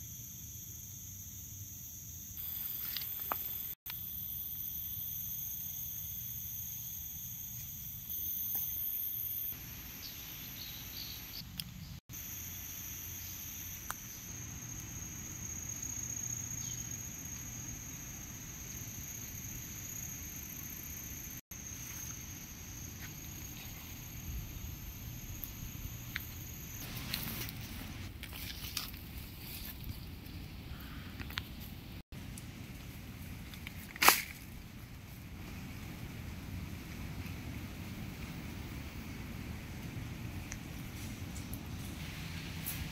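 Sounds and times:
insect chorus drone: 0.0s - 31.5s, 32.3s - 42.9s
low wind rumble: 34.5s - 42.9s.

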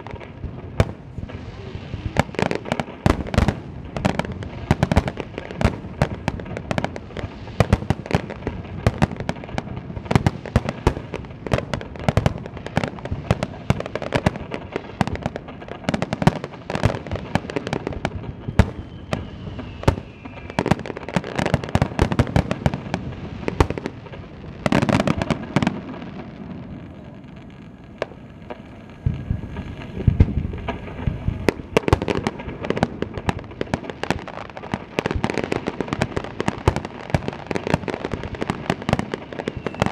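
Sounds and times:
firework shell bursts with crackle: 0.0s - 26.1s, 28.0s - 39.9s
faint falling whistle: 18.3s - 20.8s, 39.5s - 39.9s
firework launch thumps: 28.5s - 32.2s.

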